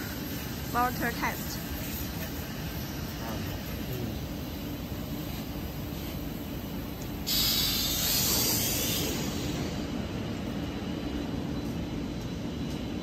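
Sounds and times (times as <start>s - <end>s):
compressed air hissing: 0.0s - 10.3s
low factory rumble: 0.0s - 13.0s.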